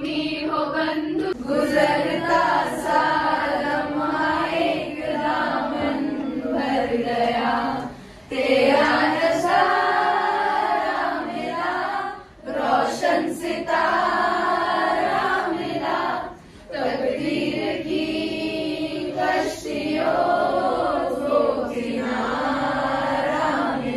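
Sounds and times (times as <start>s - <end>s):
female choir singing: 0.0s - 23.9s.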